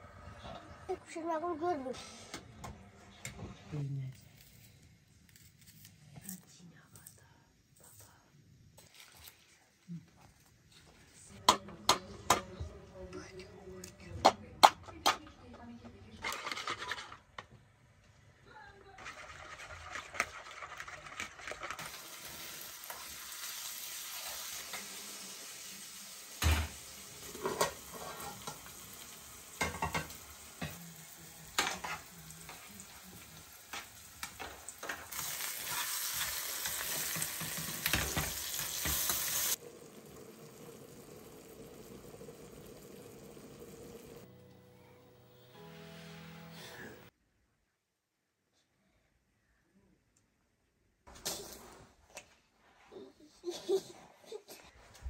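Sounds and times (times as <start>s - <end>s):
tomatoes sizzling in a pan: 21.7s - 44.4s.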